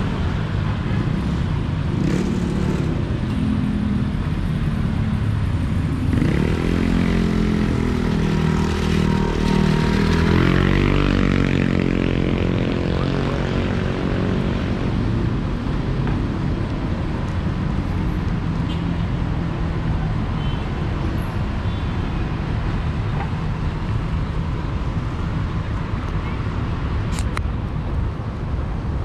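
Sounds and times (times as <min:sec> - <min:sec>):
street traffic: 0:00.0 - 0:29.0.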